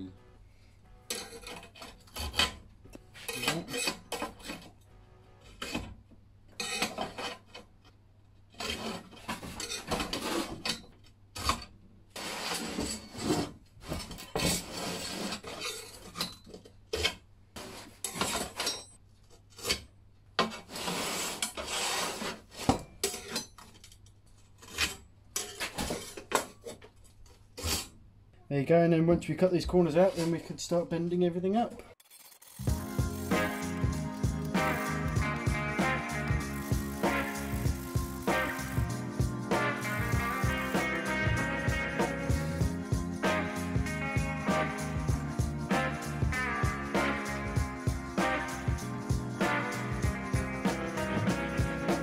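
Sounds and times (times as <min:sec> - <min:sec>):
scriber scratching steel sheet: 0:08.5 - 0:10.7, 0:12.2 - 0:13.5, 0:14.4 - 0:16.2, 0:20.5 - 0:22.7, 0:32.0 - 0:41.2.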